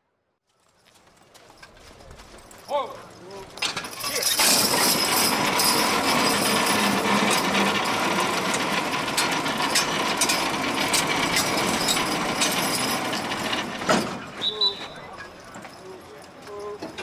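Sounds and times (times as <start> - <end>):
pulling rig rattling clatter: 2.5 - 17.0.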